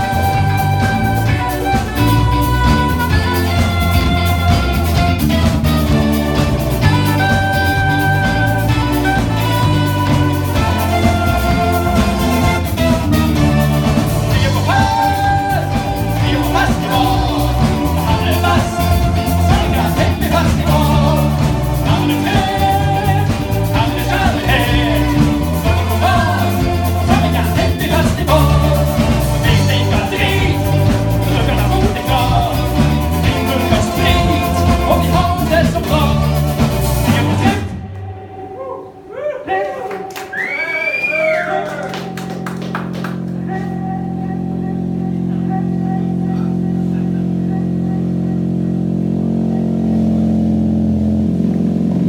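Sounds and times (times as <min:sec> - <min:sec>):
heavy bass and drum beat: 0:00.0 - 0:38.0, 0:41.3 - 0:52.0
live band with singer: 0:00.0 - 0:52.0.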